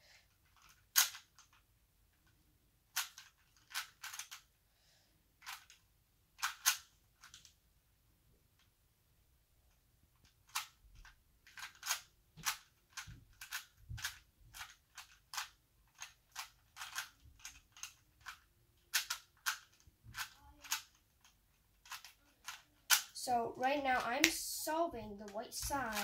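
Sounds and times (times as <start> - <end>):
plastic puzzle cube clicking: 0.3 - 4.5, 5.4 - 5.8, 6.4 - 7.6, 10.2 - 23.2, 25.2 - 26.0.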